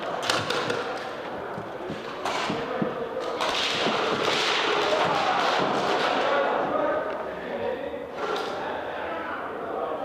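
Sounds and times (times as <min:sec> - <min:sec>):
airsoft guns firing: 0:00.0 - 0:01.1, 0:02.2 - 0:06.6.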